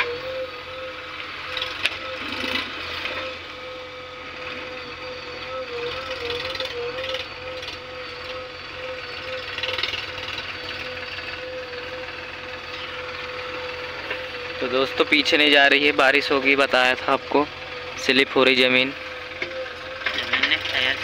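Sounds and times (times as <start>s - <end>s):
tractor engine whining under load: 0.0s - 21.0s.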